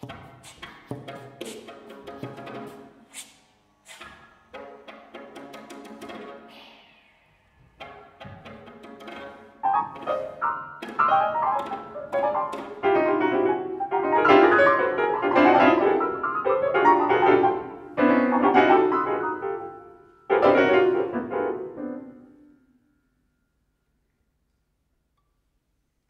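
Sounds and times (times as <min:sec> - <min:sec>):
loud piano chords: 0:09.6 - 0:22.9.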